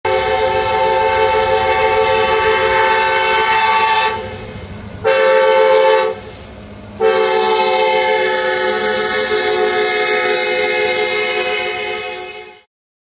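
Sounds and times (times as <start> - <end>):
locomotive air horn: 0.1 - 4.4, 5.0 - 12.7.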